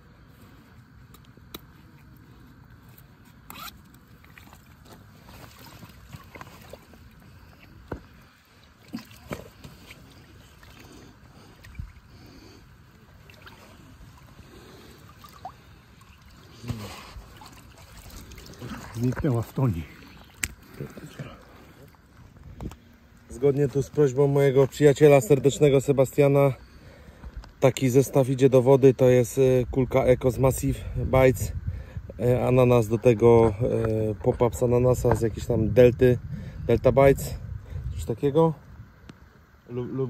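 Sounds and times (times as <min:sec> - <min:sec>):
water sloshing: 0:00.4 - 0:24.8.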